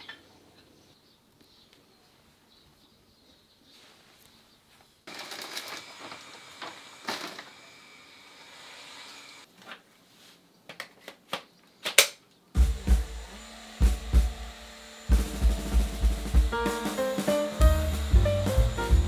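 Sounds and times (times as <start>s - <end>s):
plastic clicks and clatter: 5.1s - 7.5s
music with drum beat: 12.6s - 14.5s, 15.1s - 19.0s
hissing noise: 12.6s - 19.0s.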